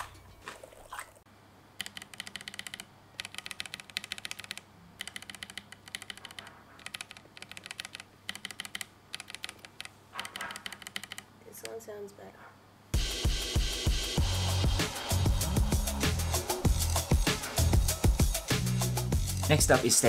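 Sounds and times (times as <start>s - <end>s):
keyboard switches clacking: 1.8s - 11.8s.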